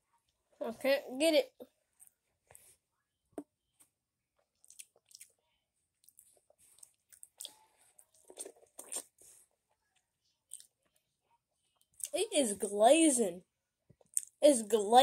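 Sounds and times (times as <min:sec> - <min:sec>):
chewing and crunching: 0:04.4 - 0:05.4, 0:06.0 - 0:11.0.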